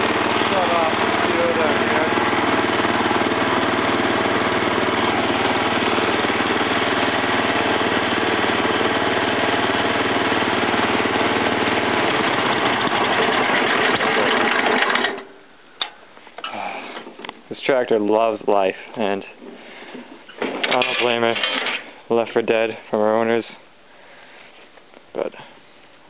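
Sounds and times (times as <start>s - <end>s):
lawn tractor engine idling: 0.0s - 17.1s.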